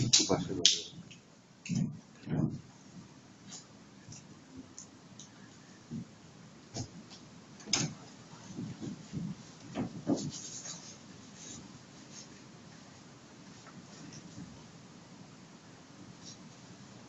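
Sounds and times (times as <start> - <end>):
objects rubbing and bumping: 6.8 - 14.6.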